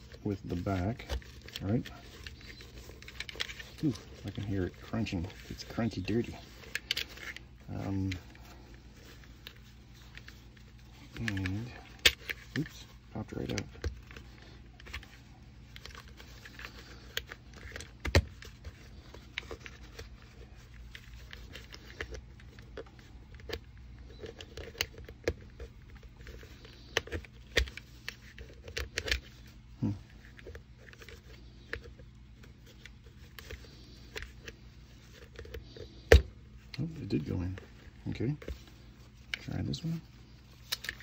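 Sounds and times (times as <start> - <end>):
webbing rustling: 0.0 - 41.0.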